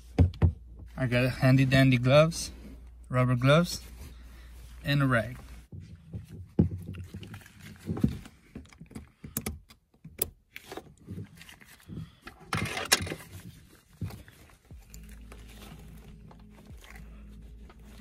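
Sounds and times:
rag rustling: 0.0 - 9.3, 10.5 - 18.0.

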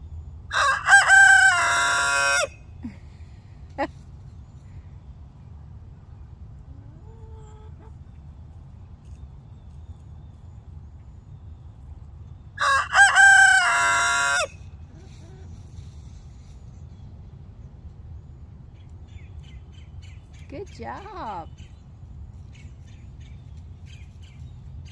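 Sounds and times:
rooster crowing: 0.5 - 2.6, 12.6 - 14.6.

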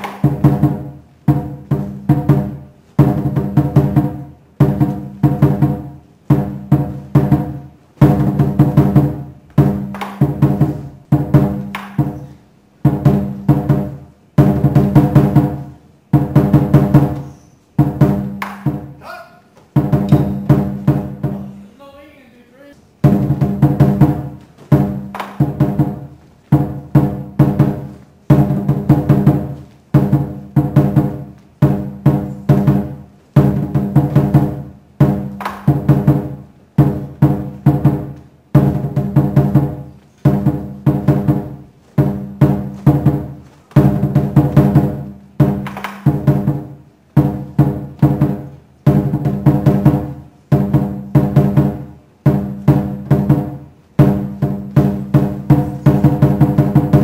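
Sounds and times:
large drum beaten: 0.0 - 17.2, 17.8 - 22.1, 22.9 - 57.0
ringing metal percussion: 20.0 - 20.7.

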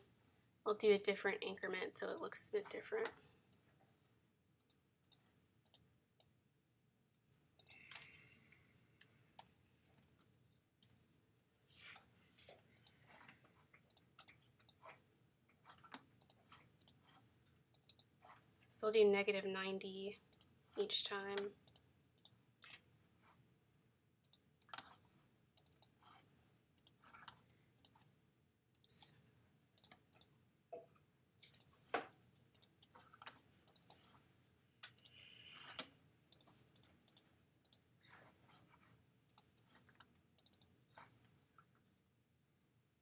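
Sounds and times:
computer mouse and keyboard clicks: 9.0 - 11.0, 12.5 - 15.0, 15.6 - 18.4, 21.4 - 23.0, 24.2 - 26.2, 26.8 - 28.2, 31.4 - 34.2, 34.8 - 41.3.

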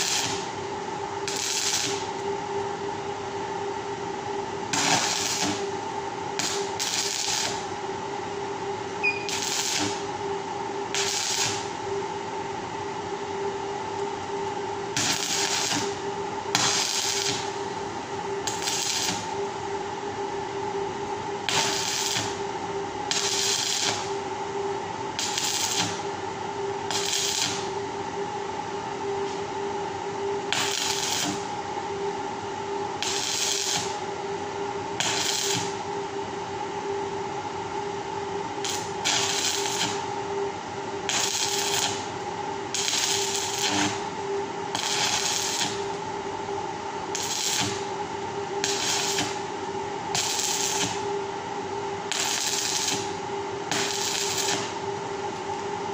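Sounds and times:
electric arc welding: 0.0 - 0.5, 1.2 - 2.1, 4.7 - 5.7, 6.4 - 7.7, 9.3 - 10.1, 10.9 - 11.7, 15.0 - 17.6, 18.4 - 19.4, 21.5 - 22.4, 23.1 - 24.2, 25.2 - 26.0, 26.9 - 27.7, 30.5 - 31.5, 33.0 - 34.0, 35.0 - 35.8, 38.6 - 40.1, 41.1 - 42.1, 42.7 - 44.1, 44.7 - 46.0, 47.1 - 47.9, 48.6 - 49.4, 50.1 - 51.1, 52.1 - 54.8
steady hum: 0.0 - 55.9.

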